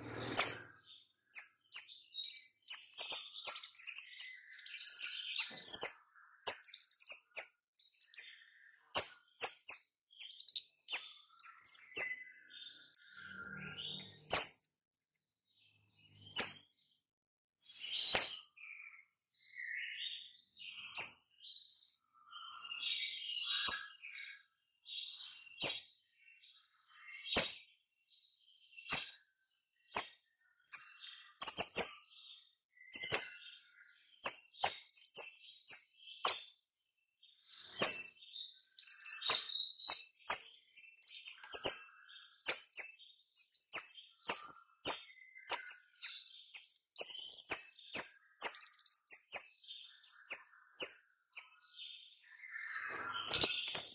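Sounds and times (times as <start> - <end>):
sharp high bird chirps: 0.0 - 12.5, 13.3 - 14.7, 16.1 - 16.8, 17.9 - 18.6, 20.8 - 21.4, 28.8 - 29.2, 29.8 - 32.1, 32.8 - 33.5, 34.1 - 36.6, 37.6 - 51.8, 52.4 - 53.9
soft bird chattering: 1.4 - 12.3, 30.0 - 32.0, 32.9 - 33.4, 34.2 - 36.5, 38.8 - 51.6, 52.9 - 53.9.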